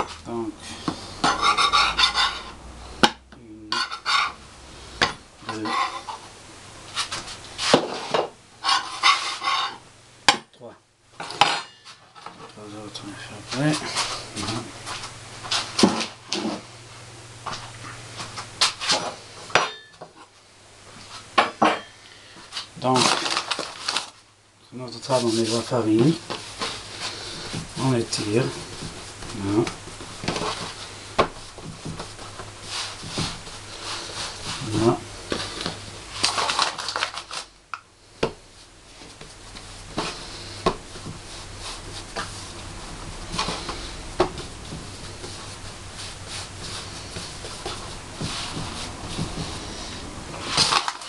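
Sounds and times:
steady low hum: 0:00.0 - 0:51.0
hands rubbing and slapping dough: 0:38.2 - 0:49.7.

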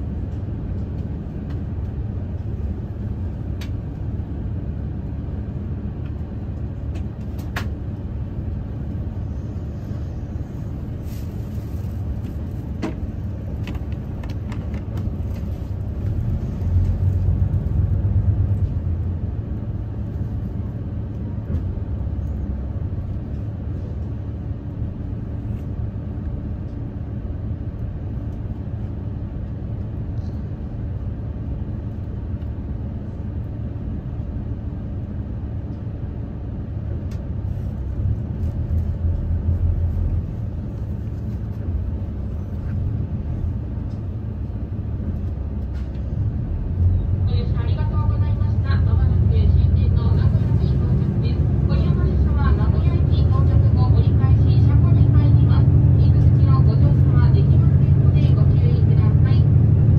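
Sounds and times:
diesel engine rumble: 0:00.0 - 0:59.9.

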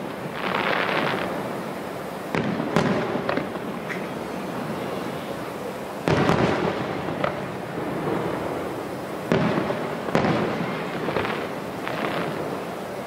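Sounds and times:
firework shells booming: 0:02.3 - 0:04.3, 0:06.0 - 0:12.7
weaker firework pops: 0:02.3 - 0:04.3, 0:06.0 - 0:07.5, 0:09.3 - 0:12.7.

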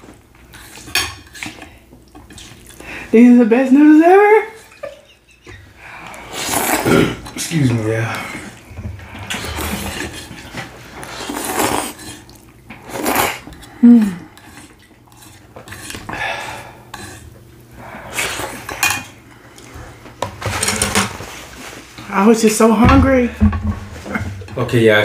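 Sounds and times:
chewing and slurping: 0:00.5 - 0:02.9, 0:04.6 - 0:07.5, 0:08.1 - 0:20.0.

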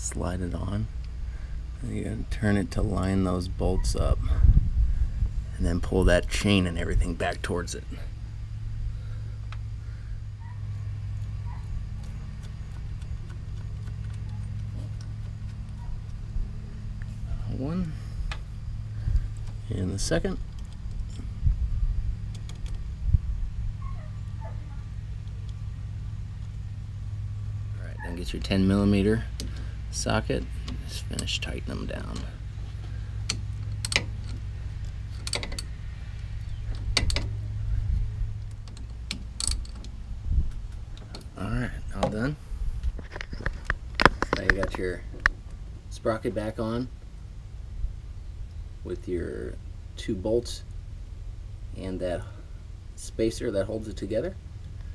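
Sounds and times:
steady low hum: 0:00.0 - 0:54.9
light metal clicks and taps: 0:33.2 - 0:35.7.

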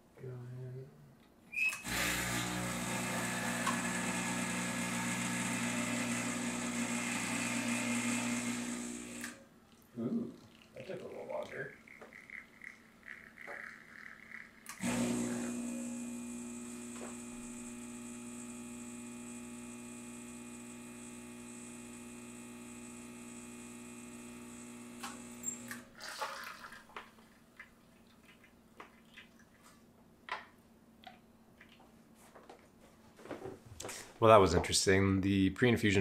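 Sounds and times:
espresso machine pump humming: 0:01.8 - 0:09.4, 0:11.8 - 0:25.9.

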